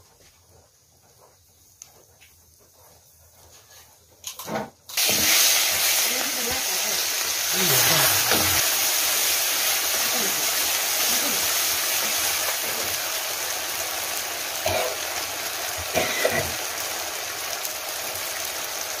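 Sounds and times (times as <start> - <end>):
curry boiling and bubbling: 4.9 - 19.0.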